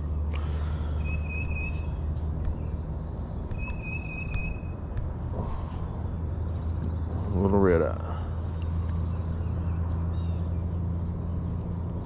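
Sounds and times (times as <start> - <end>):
bird whistling high notes: 0.9 - 2.0, 3.5 - 4.8.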